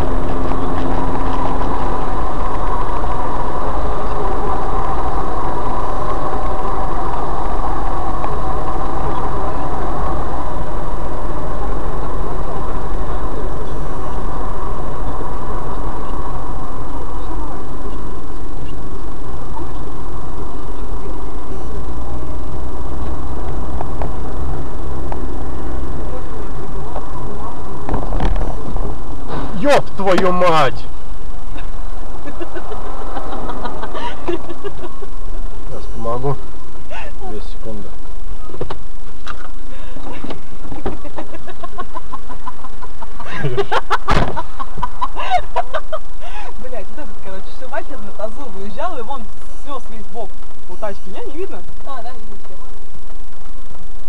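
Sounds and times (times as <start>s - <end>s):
car engine and tyres rumbling: 0.0s - 54.0s
man laughing: 31.6s - 35.1s, 40.1s - 46.4s.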